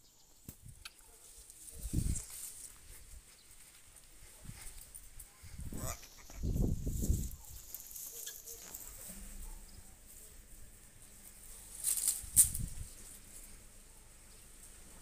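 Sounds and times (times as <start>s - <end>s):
bird wings flapping in branches: 11.8s - 13.2s.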